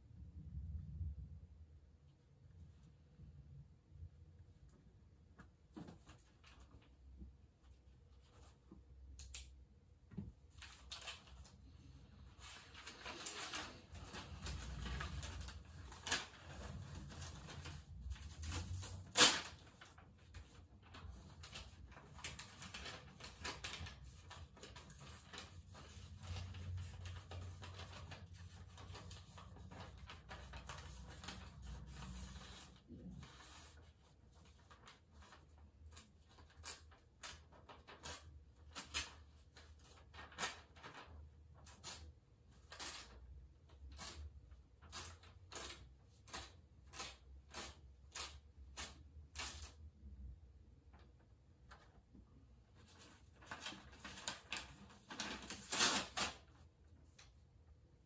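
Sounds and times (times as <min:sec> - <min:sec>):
paper rustling: 0:10.5 - 0:49.8, 0:52.7 - 0:56.6
paper tearing snaps: 0:18.4 - 0:19.7.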